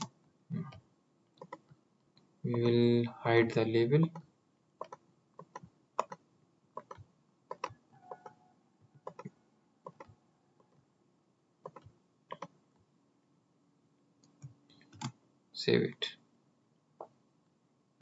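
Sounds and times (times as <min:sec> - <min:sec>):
computer mouse clicks: 0:01.4 - 0:01.8, 0:04.1 - 0:06.2, 0:06.8 - 0:08.4, 0:09.0 - 0:10.2, 0:11.6 - 0:12.6, 0:14.2 - 0:15.2.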